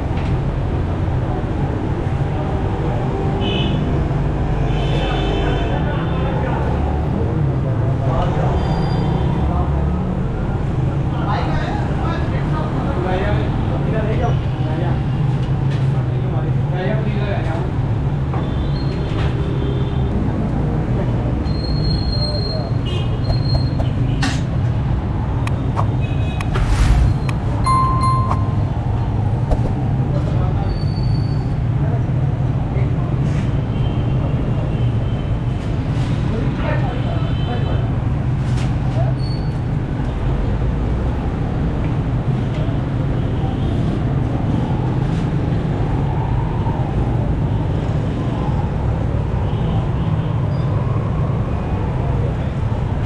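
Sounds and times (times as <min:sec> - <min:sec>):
short beep: 0:27.7 - 0:28.7.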